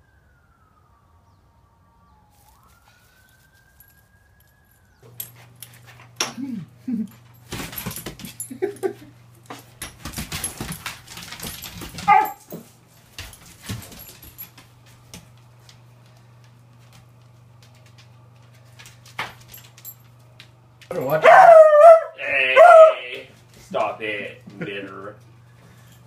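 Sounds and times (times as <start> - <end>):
dog claws clicking on tiles: 9.5 - 21.2
dog yipping: 12.0 - 12.4, 21.2 - 23.0.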